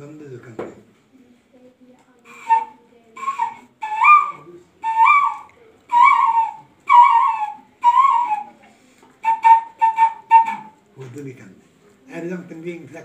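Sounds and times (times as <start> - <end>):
hand-held whistle notes: 2.3 - 8.6, 9.2 - 10.8.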